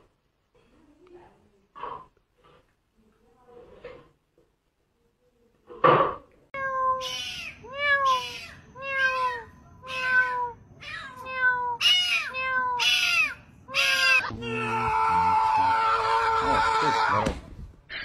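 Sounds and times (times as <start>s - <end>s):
kitten meowing: 6.6s - 15.5s.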